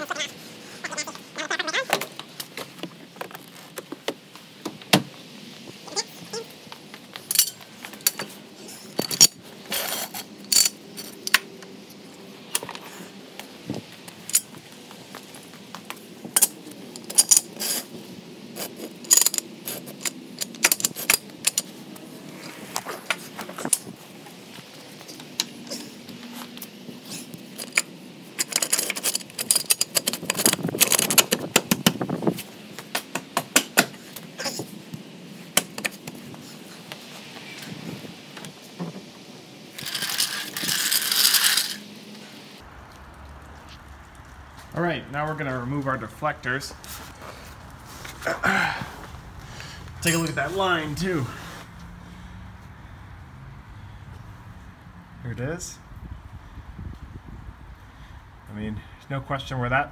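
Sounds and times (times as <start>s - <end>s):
metal tools clinking and rattling: 7.2s - 11.4s, 16.4s - 17.9s, 18.6s - 21.7s, 27.0s - 31.7s, 39.8s - 41.8s, 50.0s - 50.6s.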